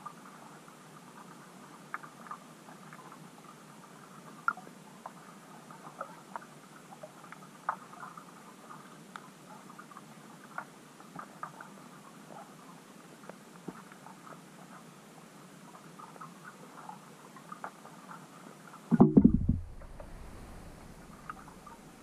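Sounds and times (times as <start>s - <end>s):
faint underwater hiss: 18.9s - 22.0s.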